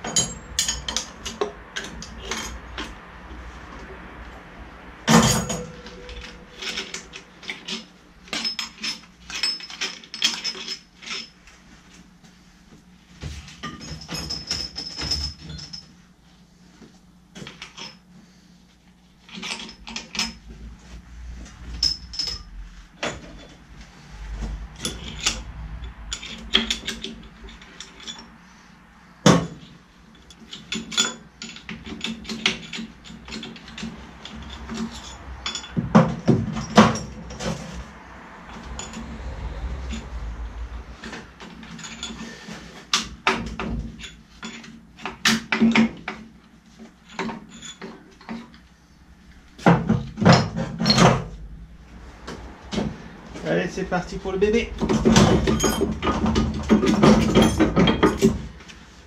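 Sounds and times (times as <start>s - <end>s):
metal tools clinking: 0.0s - 3.0s, 5.1s - 11.4s, 13.6s - 16.0s, 19.2s - 20.5s, 21.5s - 28.7s, 29.4s - 46.2s, 46.8s - 48.6s, 53.8s - 58.7s.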